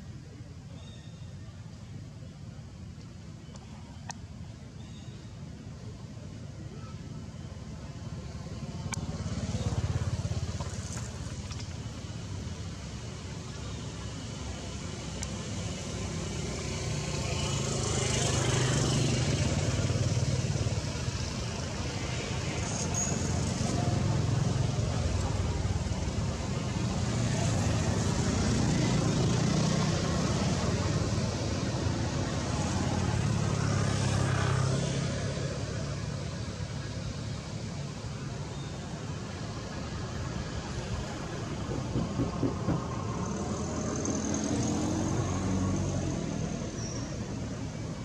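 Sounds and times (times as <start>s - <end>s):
vehicle engine rumble: 0.0s - 48.0s
low engine rumble: 35.7s - 48.0s.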